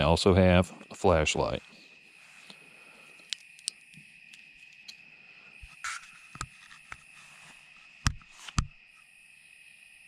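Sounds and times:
crickets trilling: 0:00.0 - 0:10.0
handling rustle: 0:05.6 - 0:08.7.

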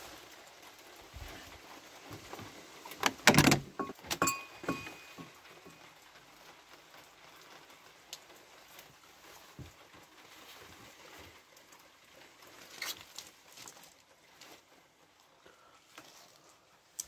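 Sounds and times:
door latch rattling and knocking: 0:03.0 - 0:03.9
wooden door swinging open: 0:03.0 - 0:04.2
brief metallic ringing: 0:03.8 - 0:05.3.

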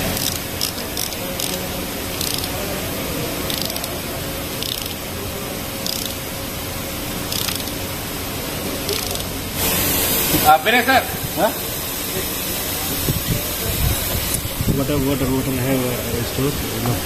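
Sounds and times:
ratchet wrench clicking: 0:00.0 - 0:02.6, 0:03.4 - 0:04.0, 0:04.6 - 0:05.1, 0:05.8 - 0:06.2, 0:07.3 - 0:07.9, 0:08.9 - 0:09.4
steady background hiss: 0:00.0 - 0:17.0.

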